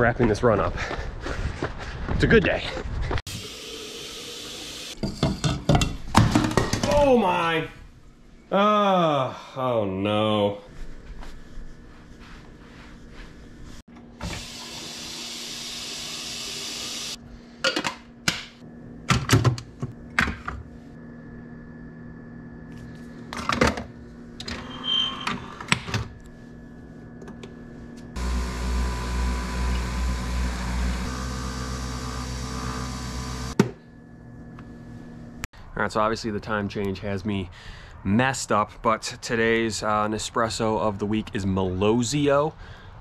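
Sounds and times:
coffee machine humming: 3.3s - 5.0s, 14.2s - 17.2s, 28.1s - 33.6s.

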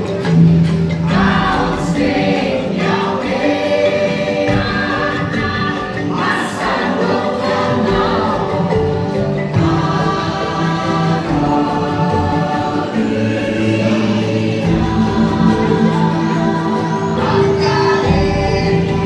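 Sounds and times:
choir singing long notes: 0.0s - 19.0s
musical backing: 0.0s - 19.0s.

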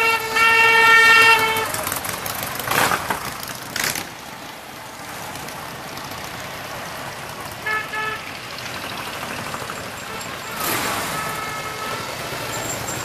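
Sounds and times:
horn toots: 0.0s - 2.0s, 7.6s - 8.4s, 10.0s - 13.0s
motorcycles riding past: 0.9s - 13.0s.

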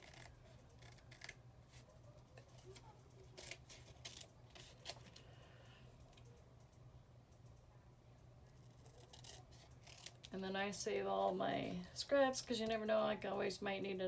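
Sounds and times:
scissors snipping paper: 0.0s - 1.4s, 2.3s - 5.2s, 8.5s - 10.4s
faint low hum: 0.0s - 14.0s.

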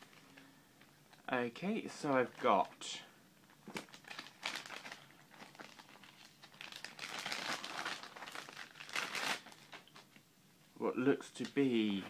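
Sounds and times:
plastic bag crinkling: 2.2s - 10.2s.

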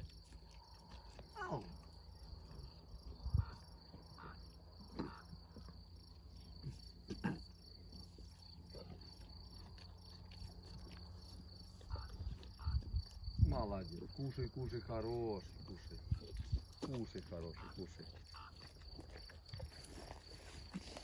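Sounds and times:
lions tearing and chewing meat: 0.0s - 2.9s, 5.1s - 13.3s, 15.5s - 21.0s
crickets chirping: 0.0s - 21.0s.

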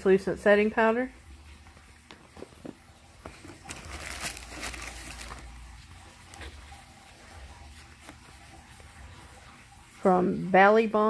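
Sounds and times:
bubble wrap rustling and crinkling: 2.1s - 9.2s.

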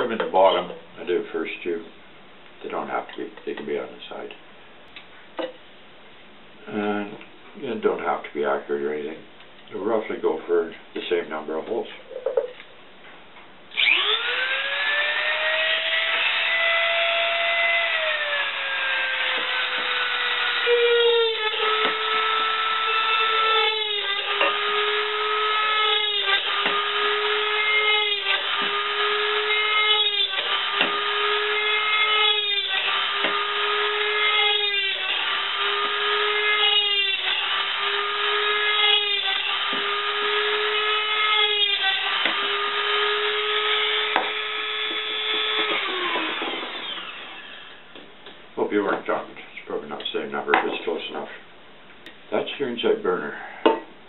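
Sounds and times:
drill bit biting through metal: 13.7s - 47.8s
rotary tool whining: 13.7s - 47.8s.

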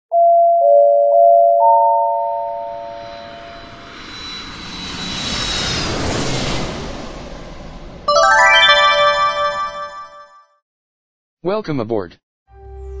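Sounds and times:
four-note cabin chime: 0.8s - 3.4s, 8.1s - 10.4s.

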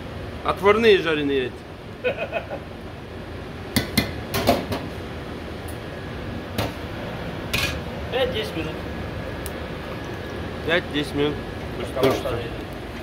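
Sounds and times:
steady background hiss: 4.9s - 13.0s.

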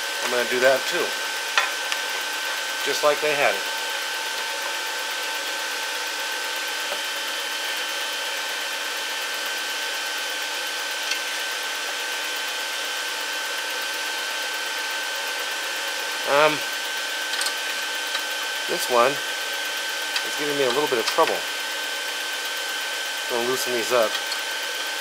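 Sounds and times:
machinery drone with high whine: 0.0s - 12.8s, 14.8s - 19.3s, 23.3s - 25.0s.

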